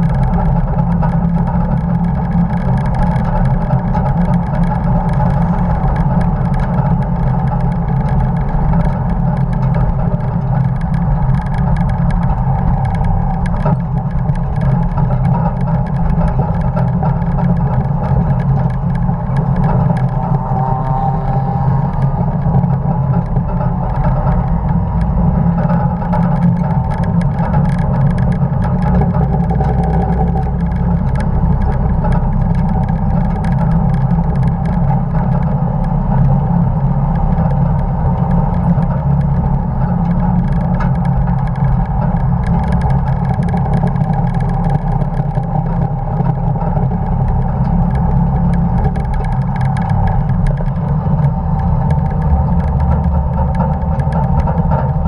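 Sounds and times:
road and wind noise: 0.0s - 55.0s
truck engine pulling under load: 0.0s - 55.0s.

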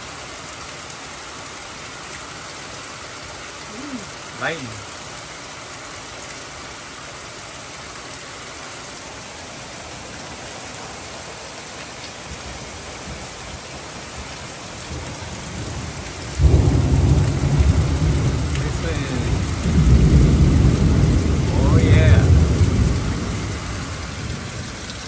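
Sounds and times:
heavy rain pouring: 0.0s - 25.0s
low thunder rumbling: 14.9s - 24.8s.

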